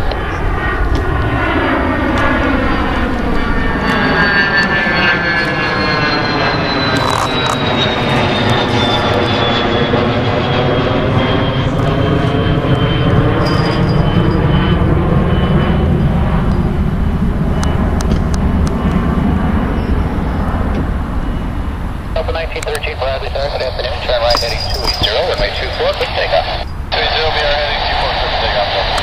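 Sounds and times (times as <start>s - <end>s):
high jet whine: 0.0s - 29.0s
jet engines rumbling overhead: 0.0s - 29.0s.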